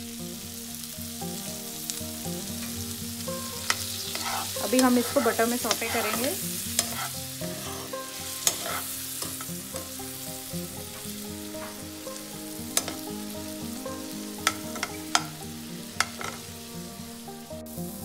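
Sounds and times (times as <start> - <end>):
broccoli sizzling in butter: 0.0 - 18.0
metal spoon clicking against pan: 3.6 - 7.1, 8.4 - 9.9, 12.8 - 13.1, 14.4 - 15.3, 16.0 - 16.4.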